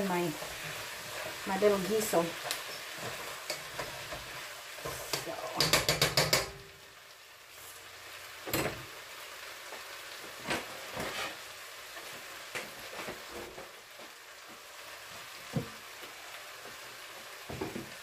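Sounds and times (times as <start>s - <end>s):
chicken sizzling in a pot: 0.0s - 18.0s.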